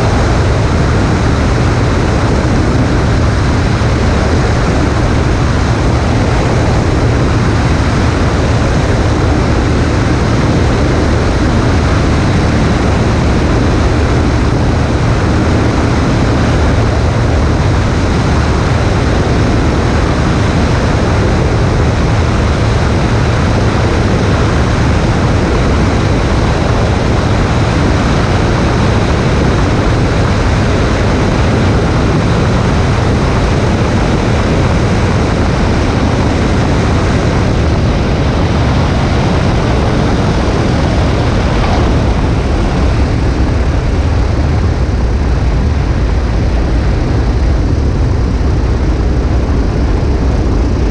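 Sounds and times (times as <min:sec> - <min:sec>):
light airplane engine rush: 0:00.0 - 0:50.9.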